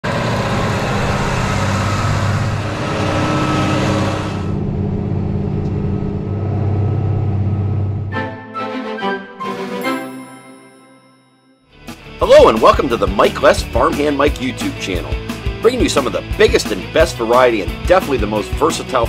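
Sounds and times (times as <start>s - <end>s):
tractor diesel engine under load: 0.0s - 8.1s.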